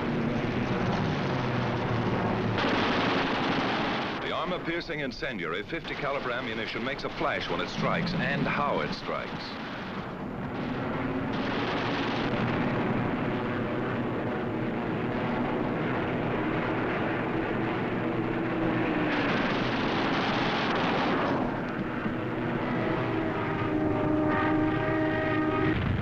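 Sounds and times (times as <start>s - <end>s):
aircraft engine drone: 0.0s - 26.0s
rapid machine-gun fire: 2.4s - 4.9s, 5.6s - 14.0s, 18.7s - 21.7s.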